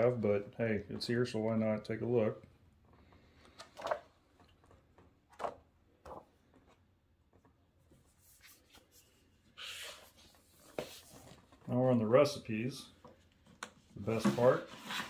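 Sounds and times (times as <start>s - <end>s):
book pages turning: 4.6s - 11.7s
paper rustle: 5.3s - 6.7s.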